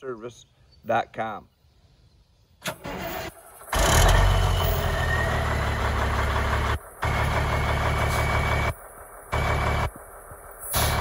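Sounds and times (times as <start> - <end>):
diesel truck engine idling: 2.9 - 11.0.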